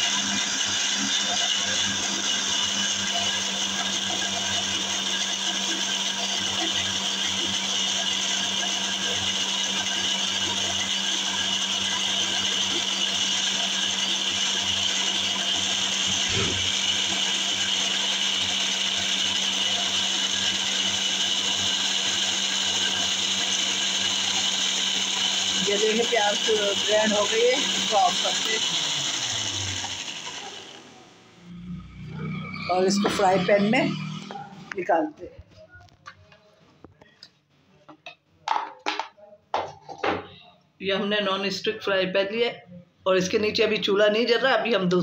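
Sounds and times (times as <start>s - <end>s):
mixer-grinder running: 0.0s - 35.4s.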